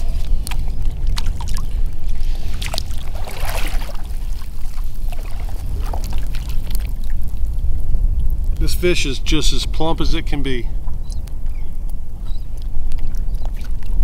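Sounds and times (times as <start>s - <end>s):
water splashing and trickling: 0.0s - 8.5s
steady low rumble: 0.0s - 14.0s.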